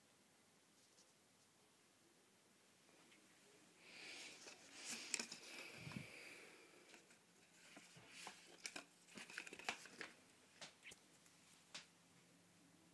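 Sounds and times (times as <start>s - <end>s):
plastic packaging crinkling: 7.8s - 10.2s.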